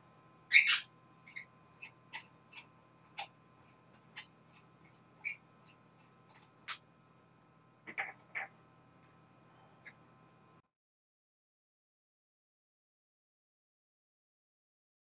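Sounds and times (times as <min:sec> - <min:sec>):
faint steady hum: 0:00.0 - 0:10.7.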